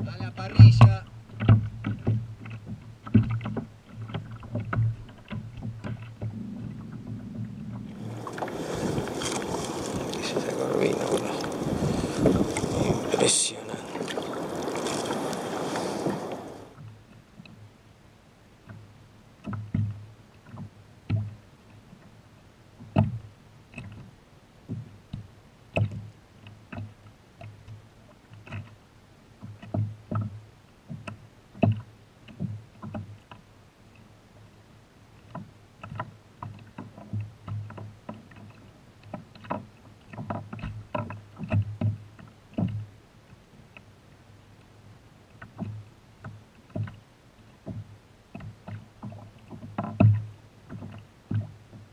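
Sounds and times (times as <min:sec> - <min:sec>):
waves slapping kayak hull: 0:00.0 - 0:16.8, 0:35.1 - 0:51.9.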